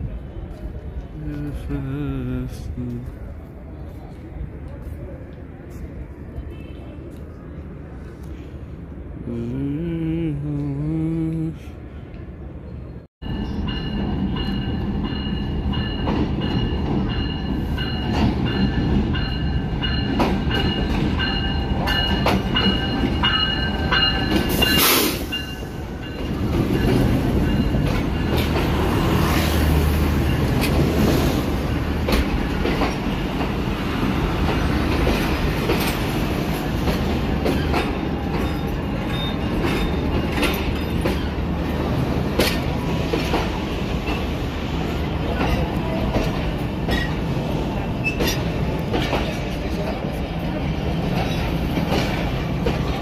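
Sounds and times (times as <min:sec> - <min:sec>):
locomotive rumbling: 0:00.0 - 0:53.0
wheels clicking over rail joints: 0:34.4 - 0:44.4.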